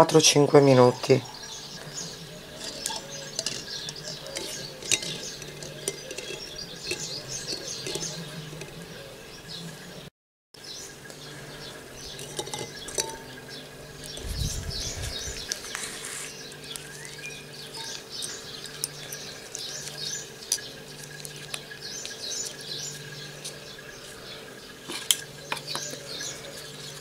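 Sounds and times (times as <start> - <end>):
small birds chirping: 0.2 - 27.0
steady low hum: 1.2 - 27.0
eggs clicking on ceramic bowl: 2.6 - 8.7.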